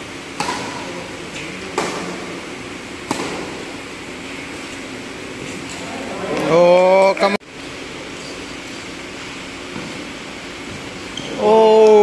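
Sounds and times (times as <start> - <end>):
racket hitting shuttlecock: 0.4 - 3.8.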